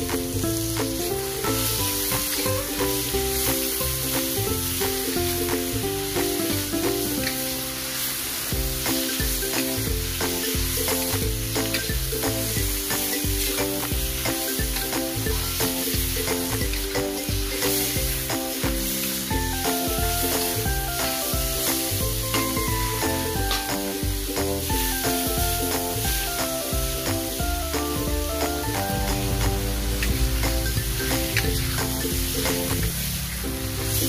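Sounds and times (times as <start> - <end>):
background music with steady beat: 0.0 - 34.0
vegetables sizzling in hot oil: 0.0 - 34.0
metal spatula scraping wok: 6.1 - 23.2.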